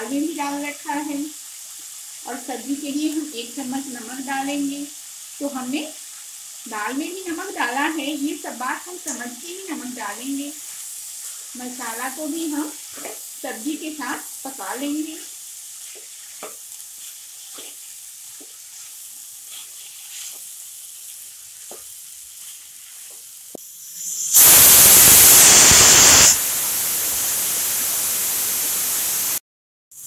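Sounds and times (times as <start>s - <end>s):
vegetables sizzling: 0.0s - 29.4s
spatula scraping: 15.8s - 17.9s
pressure cooker whistle hissing: 23.6s - 29.4s.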